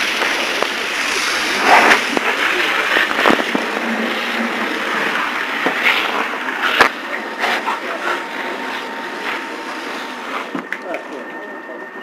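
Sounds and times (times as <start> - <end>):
hose nozzle spraying water hiss: 0.0 - 7.7.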